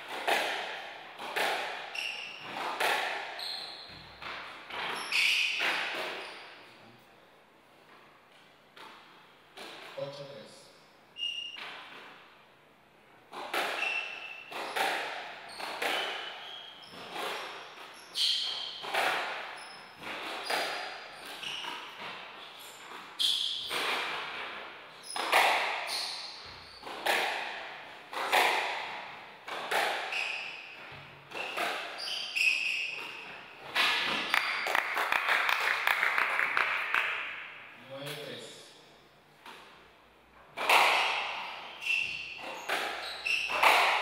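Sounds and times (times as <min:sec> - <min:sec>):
squash ball hitting rackets and walls: 0:00.0 - 0:06.6, 0:08.7 - 0:10.1, 0:11.2 - 0:12.5, 0:13.1 - 0:38.4, 0:39.3 - 0:44.0
shoes squeaking on wooden floor: 0:01.2 - 0:06.7, 0:13.3 - 0:27.2, 0:28.0 - 0:34.9, 0:40.6 - 0:44.0
people clapping: 0:34.2 - 0:37.3.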